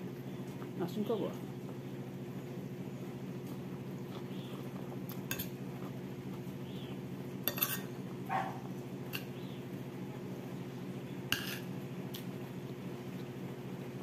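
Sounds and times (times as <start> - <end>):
refrigerator humming: 0.0 - 14.0
fork clinking on a dish: 7.5 - 8.0.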